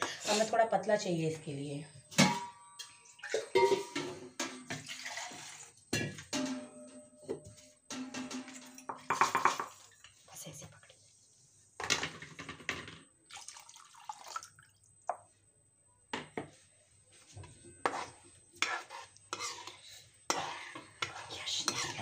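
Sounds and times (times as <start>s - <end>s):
spoon scraping a pan: 2.2s - 5.8s, 17.5s - 22.0s.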